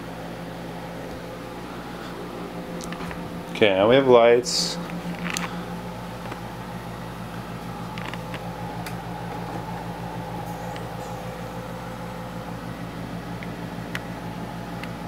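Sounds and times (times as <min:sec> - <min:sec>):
computer fan whir: 0:00.0 - 0:15.0.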